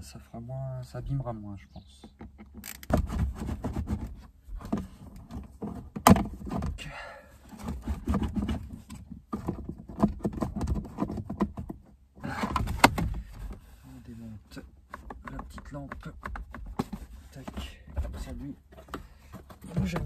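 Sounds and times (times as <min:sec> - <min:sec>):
plastic trim clicking and rattling: 0:02.0 - 0:03.0.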